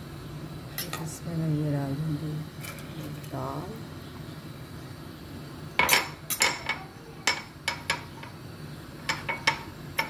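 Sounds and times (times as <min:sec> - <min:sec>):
metal clinking against cooking pot: 0:05.8 - 0:08.4, 0:09.0 - 0:10.0.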